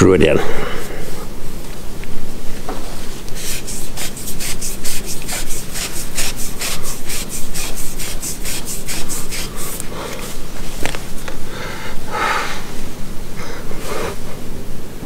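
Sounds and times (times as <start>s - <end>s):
cloth rubbing on metal tube: 2.9s - 10.8s.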